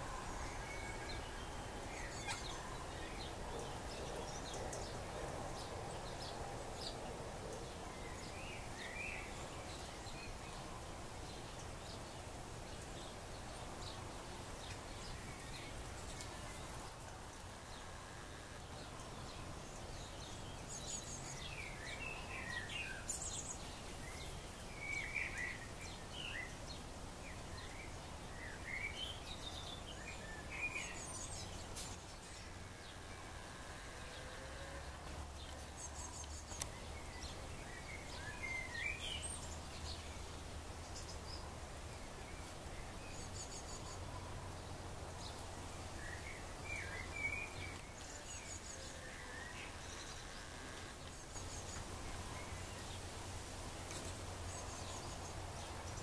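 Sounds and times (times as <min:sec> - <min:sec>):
low background noise: 0:00.0 - 0:56.0.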